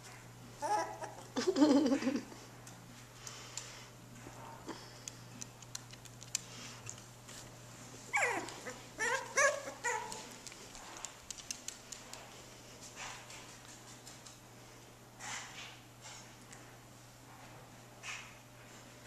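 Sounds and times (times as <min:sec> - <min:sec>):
puppies whimpering: 0:00.6 - 0:01.3, 0:08.1 - 0:10.3
puppies yipping: 0:08.1 - 0:10.4.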